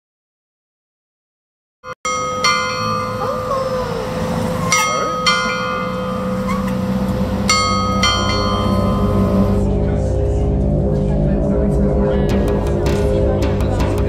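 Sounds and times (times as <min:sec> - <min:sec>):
church bells ringing: 0:02.1 - 0:09.8.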